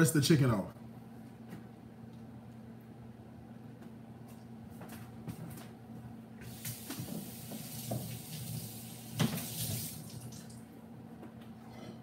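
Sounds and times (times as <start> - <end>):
tap water running into sink: 6.4 - 10.6.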